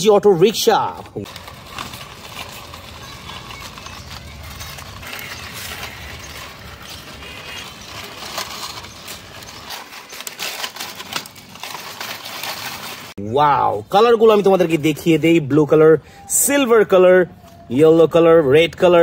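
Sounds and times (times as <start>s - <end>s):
plastic toy clicks and rustles: 1.0s - 13.1s.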